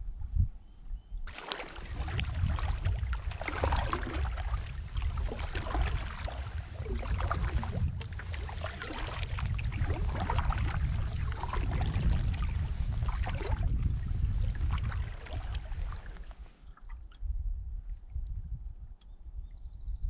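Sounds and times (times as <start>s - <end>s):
paddle strokes in water: 1.3s - 17.1s
water splashing and trickling: 1.3s - 17.3s
steady low rumble: 1.3s - 19.0s.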